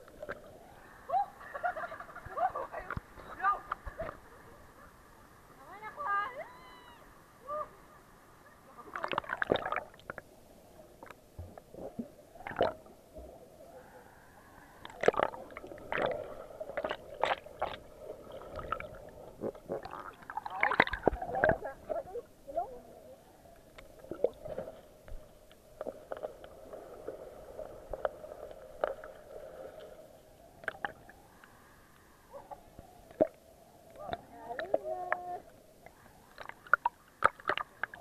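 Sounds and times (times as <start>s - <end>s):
low underwater hum: 0.0s - 38.0s
gurgling water: 8.6s - 38.0s.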